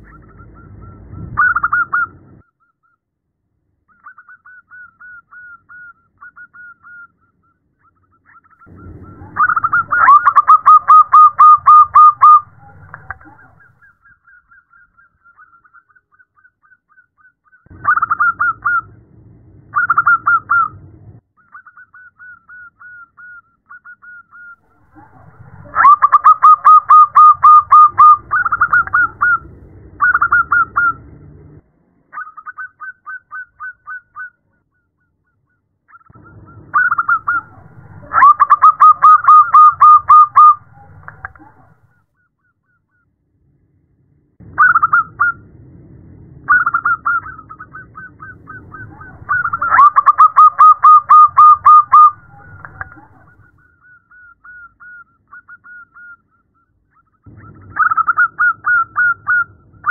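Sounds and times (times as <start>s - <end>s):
dove cooing in trills: 8.6s - 14.4s, 24.4s - 31.0s, 36.2s - 41.7s, 46.5s - 53.5s.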